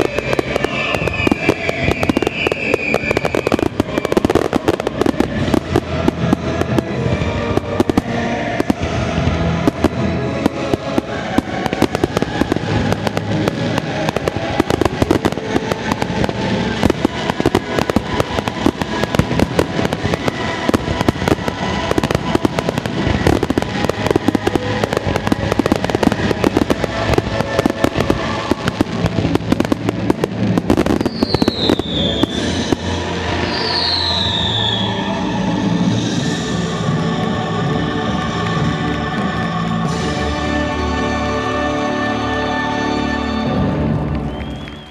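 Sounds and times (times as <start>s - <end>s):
falling firework whistles: 0.0s - 5.2s, 16.0s - 35.4s, 44.2s - 44.9s
fireworks bursts and crackle: 0.0s - 44.9s.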